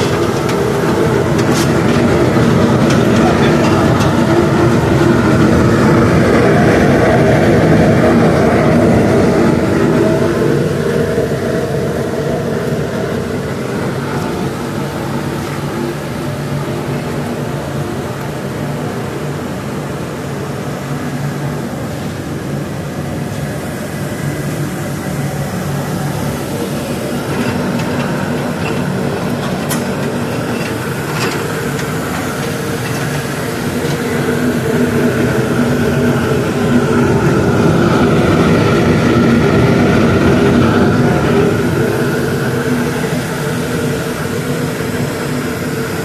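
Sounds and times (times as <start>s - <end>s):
pellet burner hum and roar: 0.0s - 46.0s.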